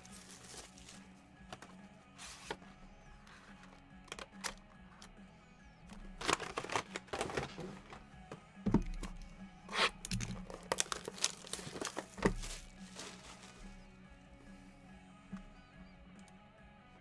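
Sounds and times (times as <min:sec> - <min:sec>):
plastic wrap tearing and crinkling: 0:00.0 - 0:01.0, 0:09.9 - 0:13.7
boxes thumping on table: 0:10.1 - 0:12.8.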